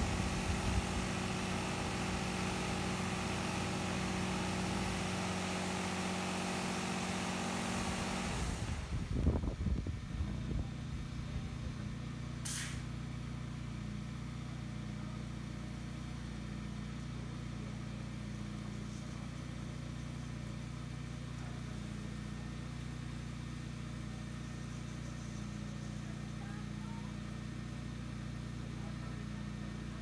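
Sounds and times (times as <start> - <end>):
car wash machine humming: 0.0 - 30.0
short hiss: 12.4 - 12.9.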